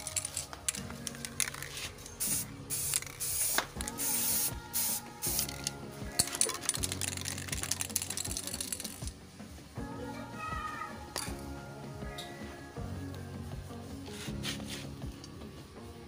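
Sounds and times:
aerosol spray can hissing: 0:01.4 - 0:09.0.

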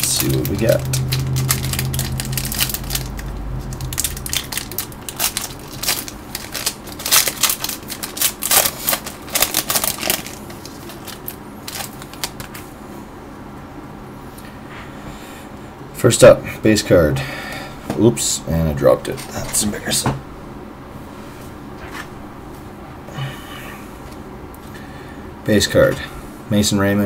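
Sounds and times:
foil pack crinkling and tearing: 0:00.0 - 0:12.7.

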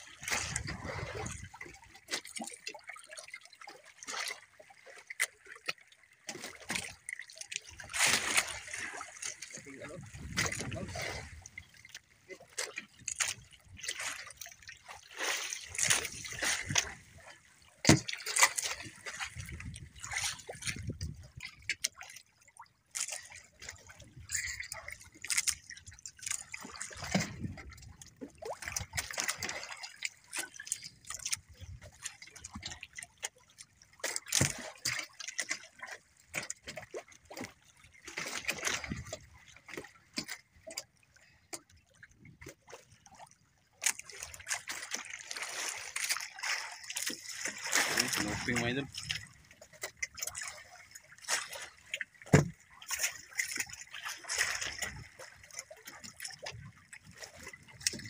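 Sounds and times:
water lapping against boat hull: 0:00.0 - 0:58.0
sharp knocks against boat: 0:17.8 - 0:18.4, 0:52.3 - 0:52.6.

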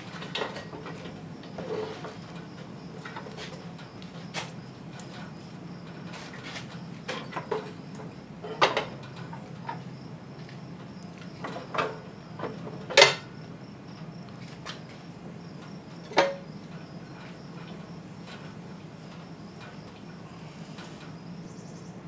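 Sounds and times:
metal clunks and knocks: 0:06.1 - 0:09.8, 0:11.4 - 0:13.3, 0:16.0 - 0:16.6.

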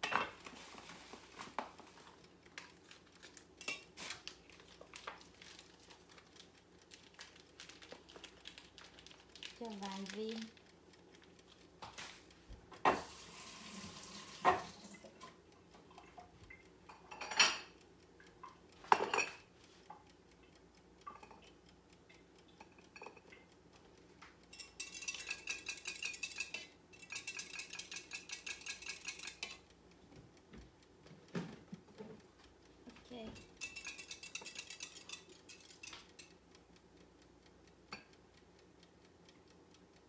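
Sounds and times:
utensils and dishes clinking: 0:00.0 - 0:01.5, 0:03.6 - 0:04.2, 0:16.9 - 0:17.7, 0:18.9 - 0:19.4, 0:24.5 - 0:29.6, 0:33.3 - 0:36.3
whisking eggs in a glass cup: 0:02.6 - 0:11.4, 0:24.5 - 0:29.7, 0:33.2 - 0:36.4.

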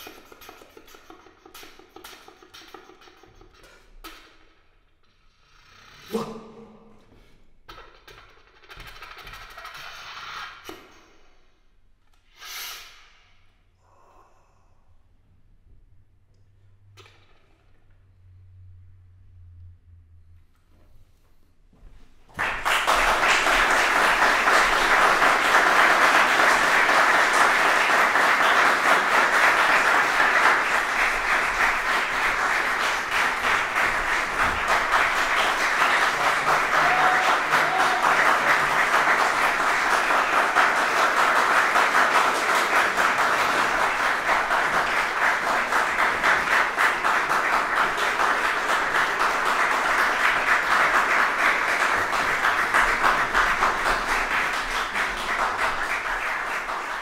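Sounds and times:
audience applause: 0:22.3 - 0:57.0.

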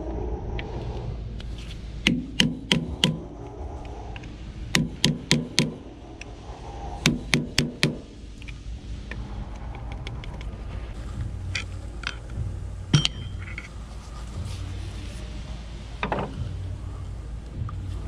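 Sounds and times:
hammer striking steel chisel: 0:02.0 - 0:03.2, 0:04.8 - 0:05.8, 0:07.0 - 0:08.0, 0:12.9 - 0:13.7.

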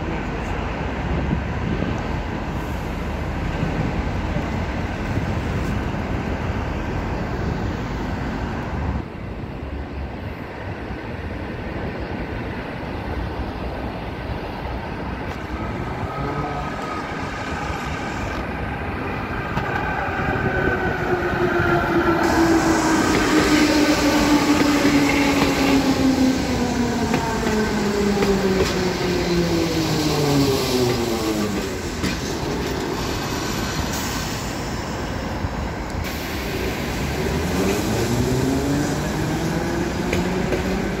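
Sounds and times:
metro train approaching: 0:00.0 - 0:41.0.

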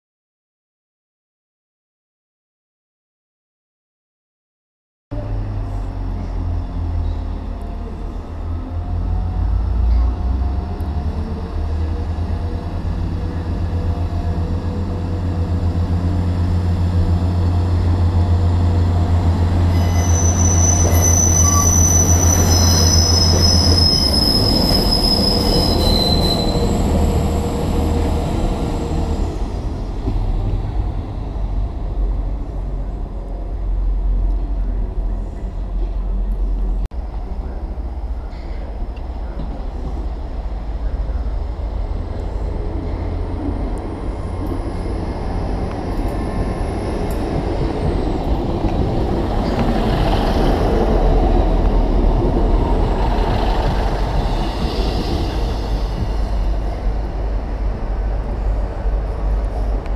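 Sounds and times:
train engine droning: 0:05.1 - 0:59.9
train wheels squealing: 0:19.6 - 0:28.8, 0:53.0 - 0:56.5.

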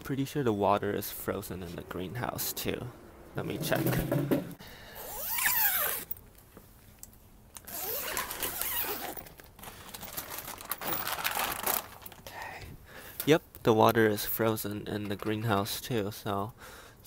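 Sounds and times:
zipper pulled open: 0:05.0 - 0:06.2, 0:07.6 - 0:09.3
plastic sheeting rustling: 0:07.7 - 0:12.3.

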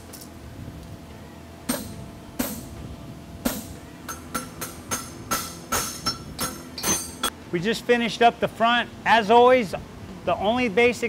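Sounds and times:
hammer striking horseshoe on anvil: 0:01.7 - 0:02.8, 0:03.4 - 0:07.3.

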